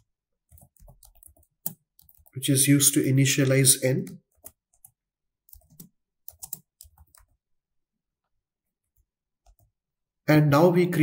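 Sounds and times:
faint keyboard typing: 0.0s - 7.4s, 8.8s - 9.8s.

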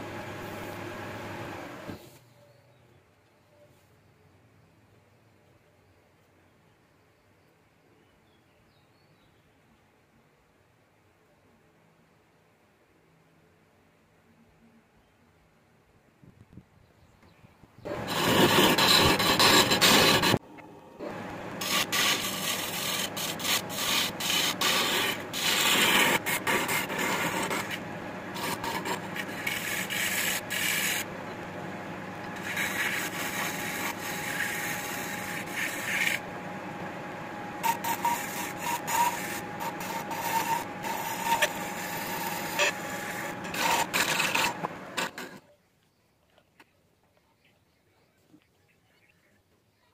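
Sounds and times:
lathe tool rasping wood: 17.9s - 20.4s, 21.0s - 45.4s.

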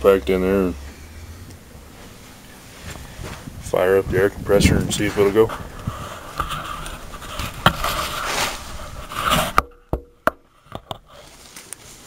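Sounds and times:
camera handling rubbing: 5.5s - 9.8s.

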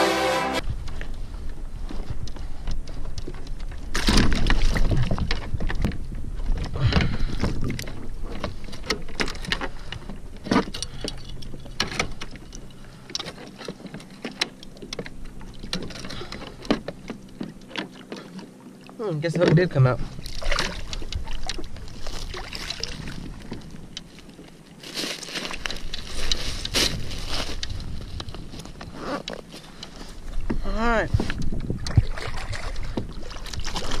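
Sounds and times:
fish slapping against plastic kayak: 3.3s - 10.8s, 20.2s - 23.8s, 31.2s - 34.0s.

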